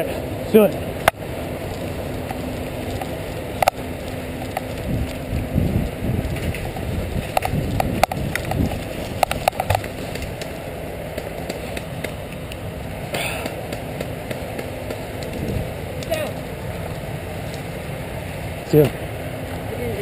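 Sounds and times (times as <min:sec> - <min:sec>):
sharp clicks and snaps: 0:02.2 - 0:05.2, 0:07.3 - 0:12.6.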